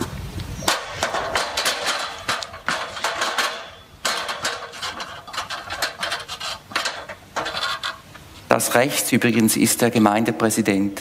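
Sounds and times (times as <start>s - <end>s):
metal ladder clattering: 0.6s - 9.4s
rapid irregular clicking: 0.7s - 8.3s.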